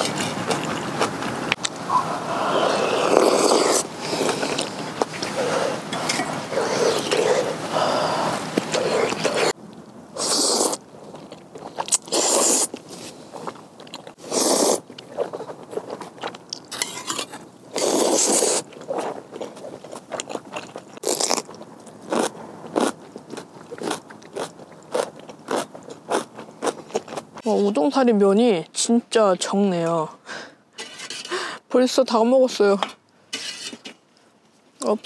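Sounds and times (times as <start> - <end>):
slurping noodles: 1.9 - 9.6, 10.2 - 16.1, 17.0 - 21.5
crisp crunching of chewing: 10.3 - 27.4.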